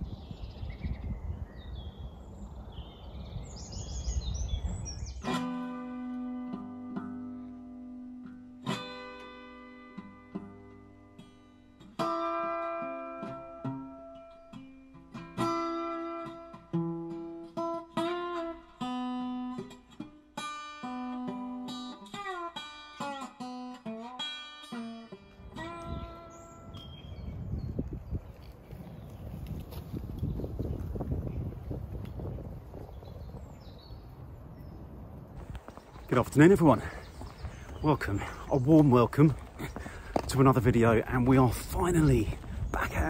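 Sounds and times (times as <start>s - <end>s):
acoustic guitar plucked notes: 5.2s - 27.0s.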